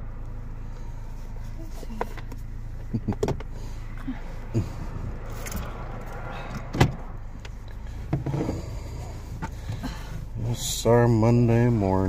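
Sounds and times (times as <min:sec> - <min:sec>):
car cabin engine hum: 0:00.0 - 0:12.0.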